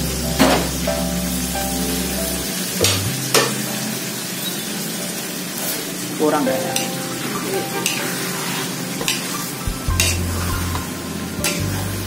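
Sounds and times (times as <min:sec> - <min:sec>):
food sizzling in a wok: 0:00.0 - 0:12.0
metal spatula scraping a wok: 0:07.8 - 0:10.8.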